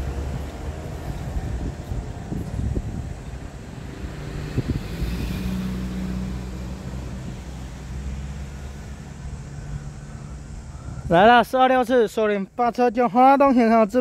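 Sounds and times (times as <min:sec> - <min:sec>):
vehicle engine running: 0:00.0 - 0:11.1
road traffic noise: 0:00.0 - 0:14.0.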